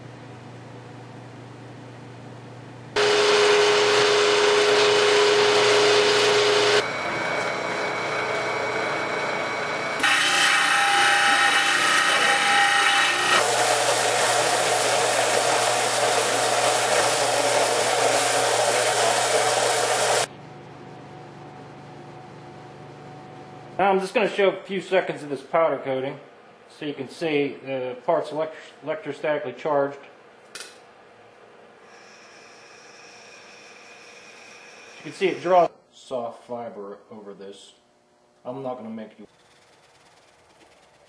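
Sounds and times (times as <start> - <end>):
belt sander grinding metal: 3.0 - 20.3.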